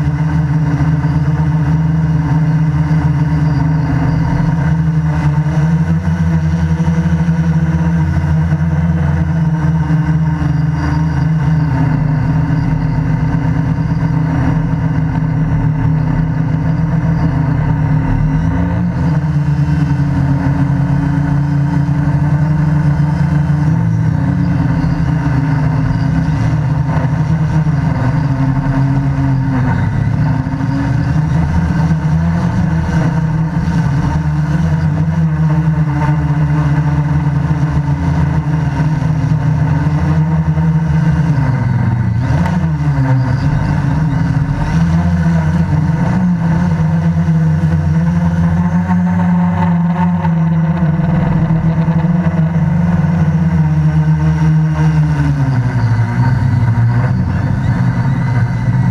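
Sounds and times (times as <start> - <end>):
quadcopter motors buzzing: 0.0 - 58.9.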